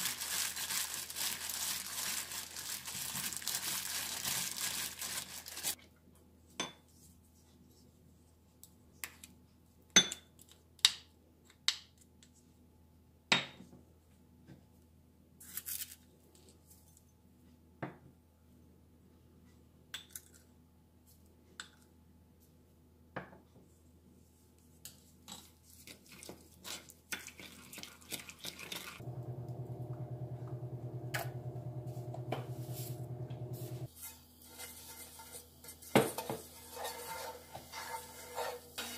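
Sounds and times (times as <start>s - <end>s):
steady low hum: 29.0s - 33.9s.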